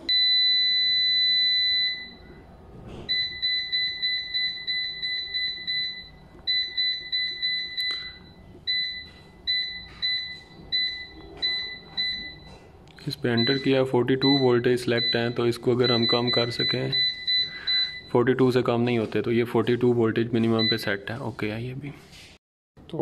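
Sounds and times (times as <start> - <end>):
panel buzzer beeping: 13.3 - 18.2.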